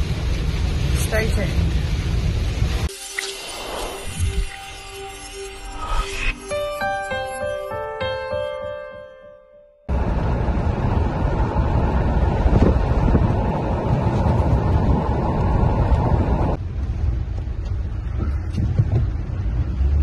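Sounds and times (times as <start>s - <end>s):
wind buffeting microphone: 9.9s - 19.9s
vehicle rumble from inside cab: 9.9s - 20.0s.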